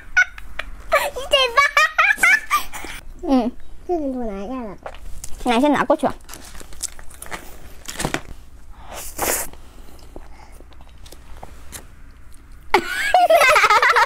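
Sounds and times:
woman laughing loudly: 0.0 - 3.0, 12.7 - 14.0.

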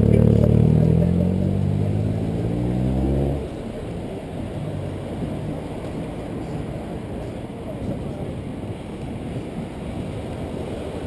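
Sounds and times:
vehicle engine accelerating: 0.0 - 6.5
wind and road noise: 0.0 - 11.0.

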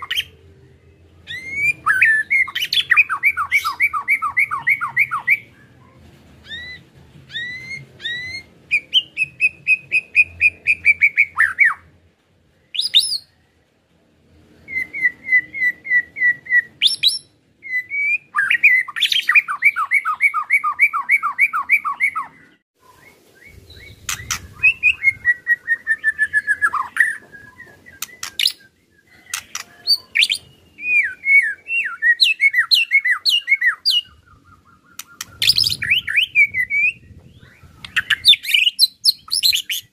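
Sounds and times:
songbird singing fast repeated notes: 0.0 - 5.9, 14.6 - 39.9.

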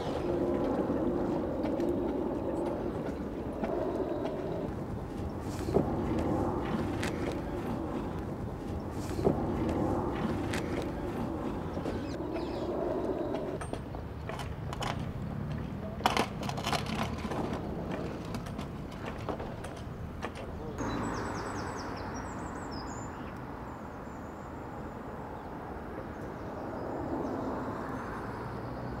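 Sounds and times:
low background rumble: 0.0 - 13.6
high falling bird chirps: 11.6 - 13.6.

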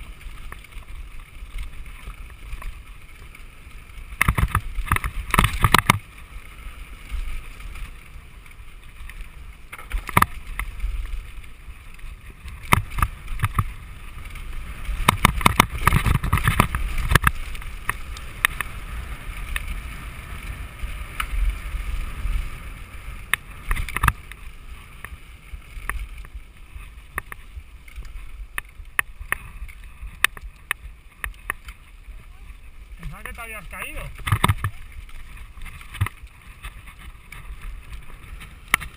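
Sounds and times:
tyres rumbling on dirt: 0.0 - 38.9
bike knocking and clattering: 4.1 - 6.1, 9.0 - 10.8, 12.0 - 18.8, 23.2 - 25.2, 33.1 - 38.9.

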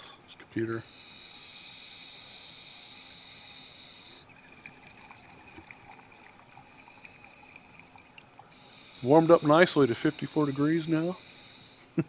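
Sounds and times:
faint high whine: 0.0 - 5.0, 6.7 - 12.0
underwater hiss: 0.8 - 4.2, 8.5 - 11.9.

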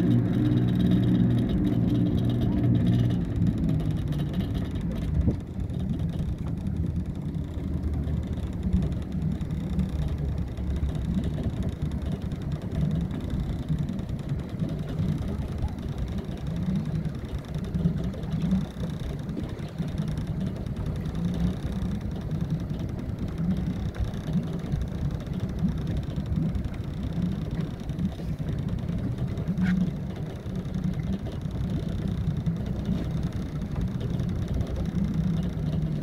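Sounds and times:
boat engines droning: 0.0 - 36.0.

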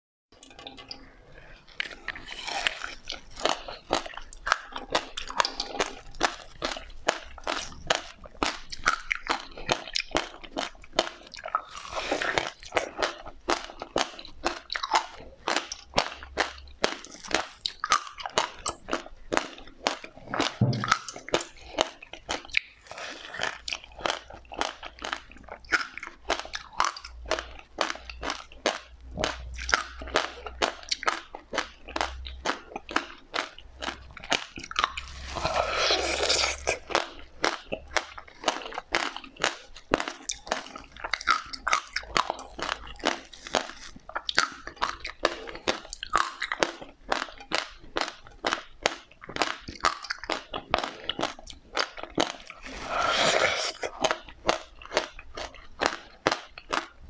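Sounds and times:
crunching and chewing: 0.4 - 57.0
slurping: 11.2 - 12.9, 22.5 - 26.1, 34.2 - 37.6, 52.4 - 54.2.

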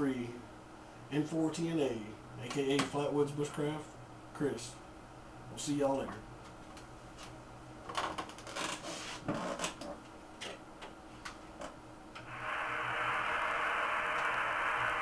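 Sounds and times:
radio receiver hiss: 12.2 - 15.0.

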